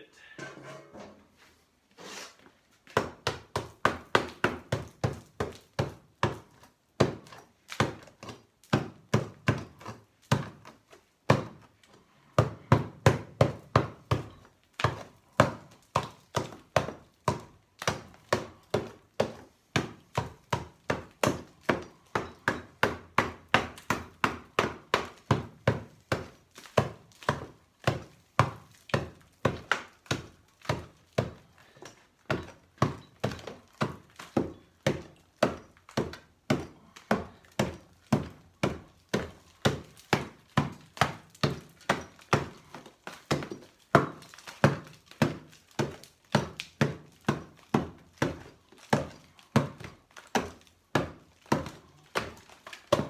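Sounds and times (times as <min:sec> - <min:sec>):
hammer chipping concrete: 0:02.9 - 0:53.0.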